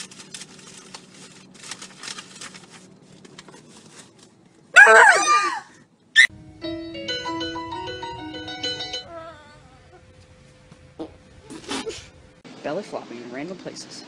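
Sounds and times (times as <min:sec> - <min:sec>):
loud high-pitched scream: 0:04.8 - 0:06.3.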